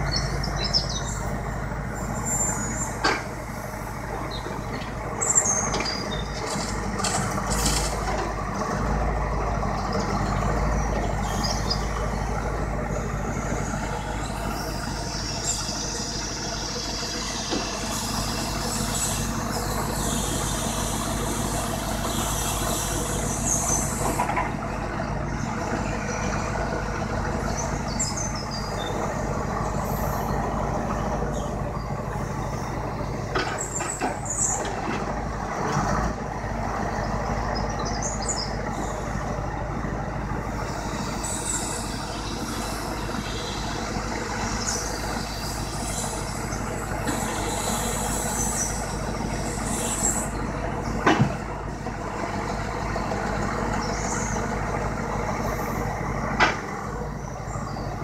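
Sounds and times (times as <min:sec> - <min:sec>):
diesel engine running: 0:00.0 - 0:58.0
logs knocking and clunking: 0:51.0 - 0:51.4, 0:56.3 - 0:56.7.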